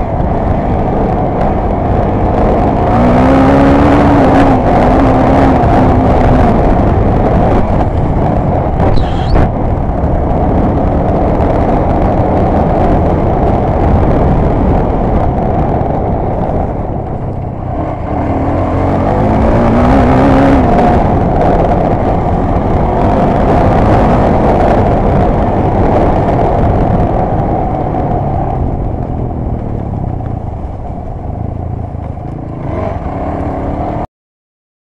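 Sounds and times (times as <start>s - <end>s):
wind rushing over microphone: 0.0s - 34.1s
off-road vehicle engine revving: 1.6s - 7.8s, 17.7s - 28.6s, 32.5s - 34.0s.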